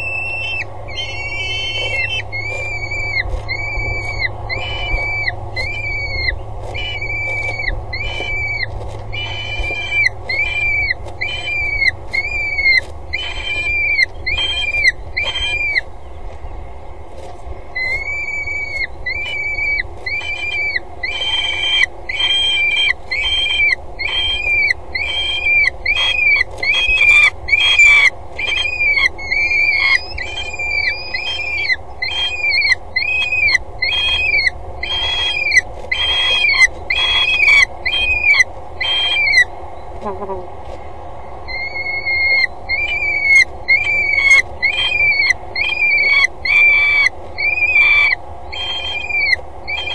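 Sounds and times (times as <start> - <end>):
falcon calling: 0.0 - 15.9, 17.8 - 40.5, 41.5 - 49.9
steady low hum: 0.0 - 49.9.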